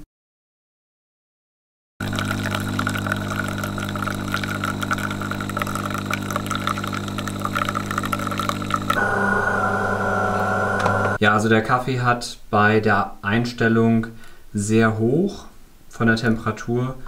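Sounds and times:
coffee machine pump humming: 2.0 - 11.2
coffee streaming into glass cup: 2.0 - 11.2.

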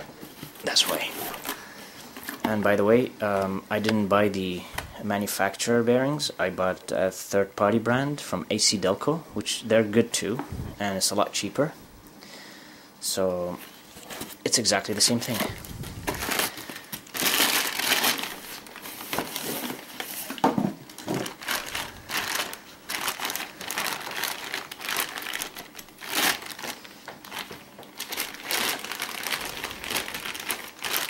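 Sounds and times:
plastic bag crinkling: 15.0 - 31.0.

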